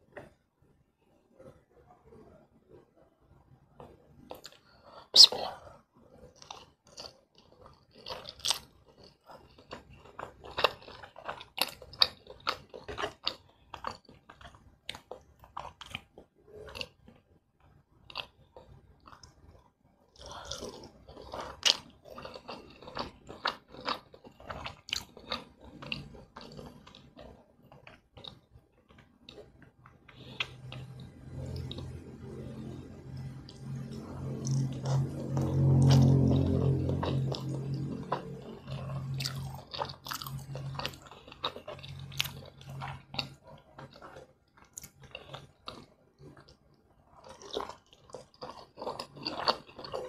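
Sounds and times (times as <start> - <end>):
chewing noodles: 3.7 - 17.2, 18.1 - 50.0
low steady hum: 17.6 - 50.0.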